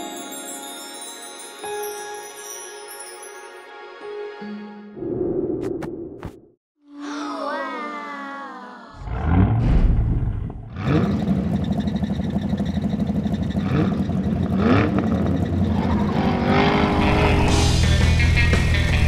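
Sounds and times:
cartoon truck engine rumble: 9.0 - 19.0.

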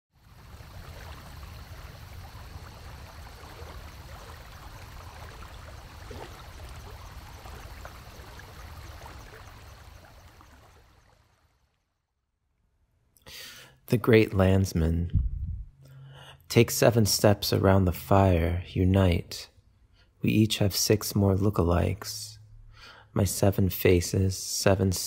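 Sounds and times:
low rumble: 15.0 - 15.8.

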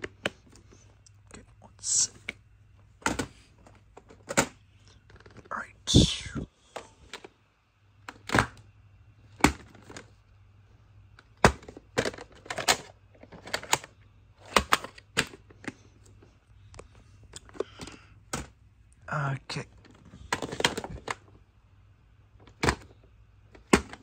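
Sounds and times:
plastic case clicks and knocks: 3.0 - 5.4, 9.4 - 10.1, 11.2 - 13.8, 17.4 - 18.6, 19.8 - 21.3, 22.4 - 24.0.

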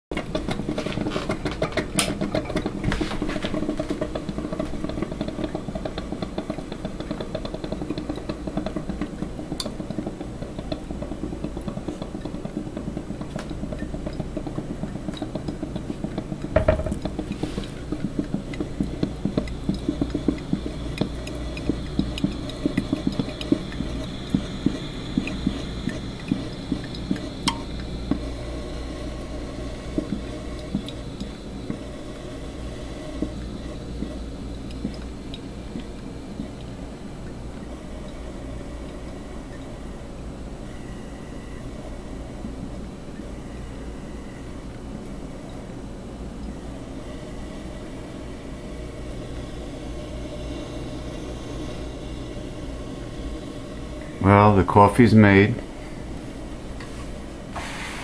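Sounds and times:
coffee maker water gurgling: 0.1 - 58.0
steady low hum: 0.1 - 58.0
loud knock: 16.6 - 17.0.

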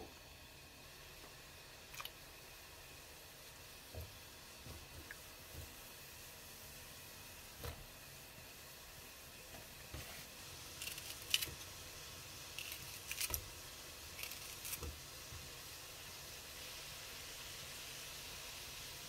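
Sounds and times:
faint steady hiss: 0.0 - 19.0
scissors snipping onion stalk: 10.8 - 11.6, 14.2 - 14.8.

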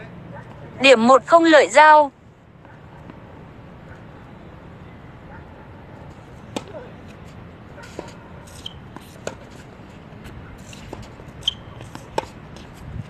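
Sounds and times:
racket hitting tennis ball: 6.1 - 12.9
shoe squeaks: 7.8 - 9.2, 10.5 - 12.7.

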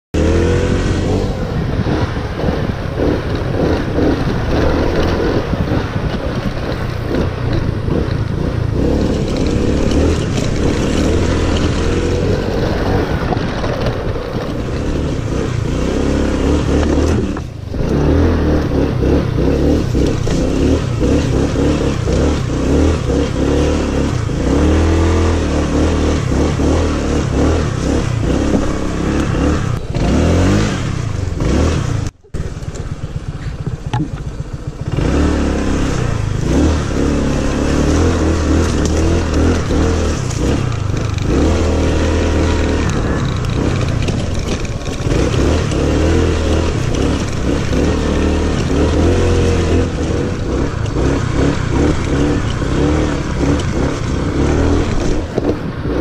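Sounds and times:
scooter engine revving: 0.1 - 56.0.

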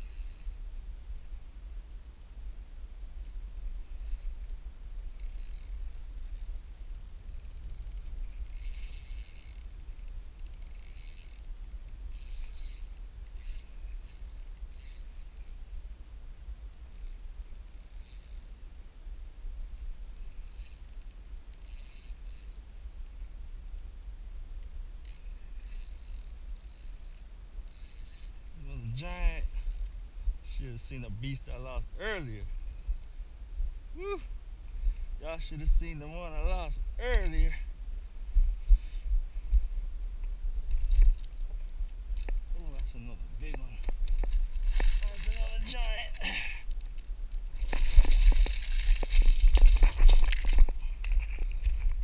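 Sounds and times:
fishing reel ticking whir: 0.0 - 0.9, 3.2 - 16.0, 16.7 - 24.0, 24.6 - 31.5, 32.1 - 33.2
steady low rumble: 0.0 - 52.0.

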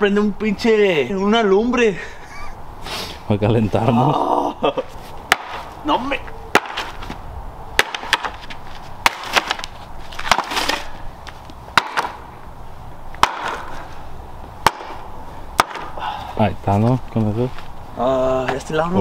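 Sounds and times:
axe chopping wood: 5.3 - 5.7, 6.5 - 7.0, 7.8 - 8.4, 9.0 - 10.9, 11.7 - 12.3, 13.2 - 13.8, 14.6 - 15.0, 15.6 - 16.0
wood cracking: 7.8 - 12.2, 15.6 - 15.9.

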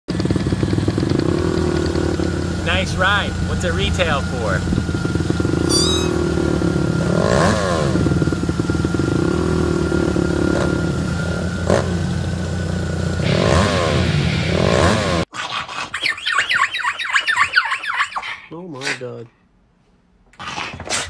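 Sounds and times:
car engine running: 0.1 - 15.2
road and traffic noise: 0.1 - 15.3
high-pitched squeaks and whines: 5.6 - 6.3.

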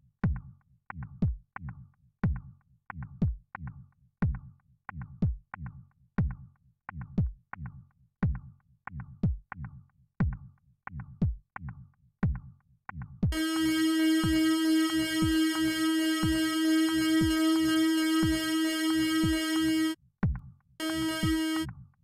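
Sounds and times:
synthesized kick drum: 13.2 - 21.8
buzzing synth drone: 13.3 - 20.0, 20.8 - 21.7.

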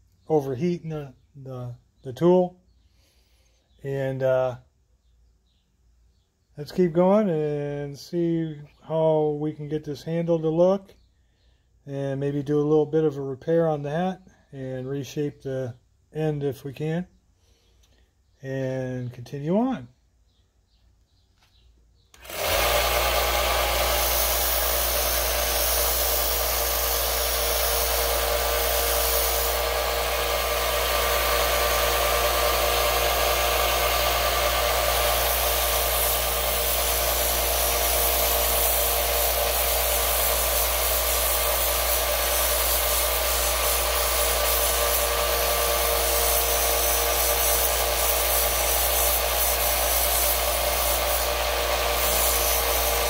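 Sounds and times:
belt grinder motor humming: 22.2 - 53.0
workpiece rasping on grinder belt: 22.2 - 53.0.

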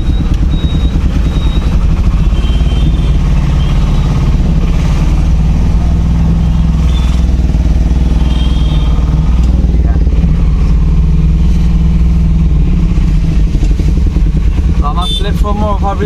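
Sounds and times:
low engine rumble: 0.0 - 16.0
vehicle road noise: 0.0 - 16.0.

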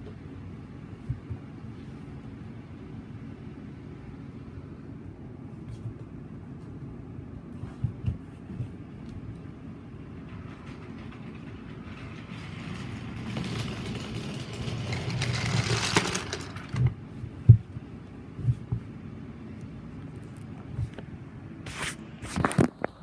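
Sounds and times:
toy train rolling on wooden track: 10.2 - 16.9.

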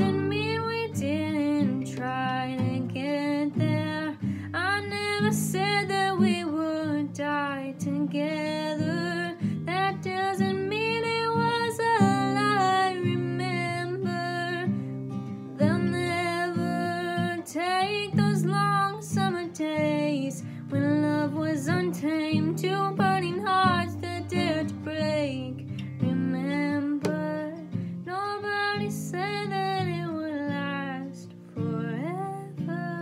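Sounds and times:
strummed acoustic guitar: 0.0 - 33.0
woman singing: 0.0 - 33.0.

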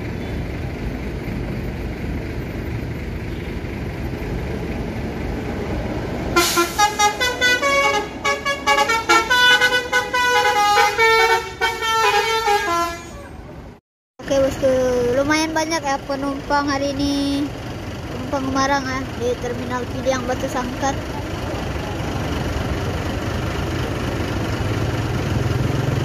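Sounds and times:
bus engine rumble: 0.0 - 26.0
musical bus horn tune: 6.3 - 13.5.

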